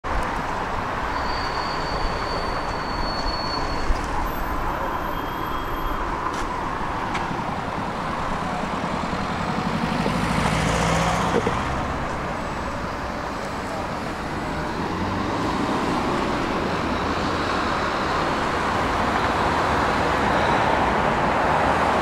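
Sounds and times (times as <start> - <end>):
city street traffic: 0.0 - 22.0
vehicle passing close: 8.4 - 12.1.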